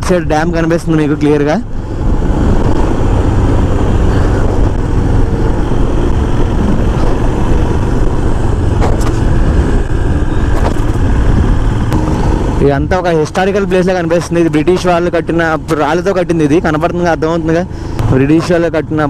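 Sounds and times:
motorcycle engine rumble: 0.0 - 19.0
wind noise on microphone: 1.6 - 13.2.

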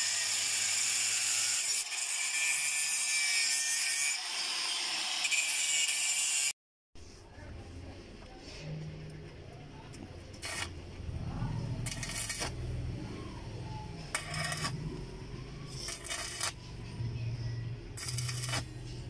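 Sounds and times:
arc welding crackle: 10.4 - 10.7, 11.8 - 12.6, 14.1 - 14.8, 15.8 - 16.6, 18.0 - 18.8.

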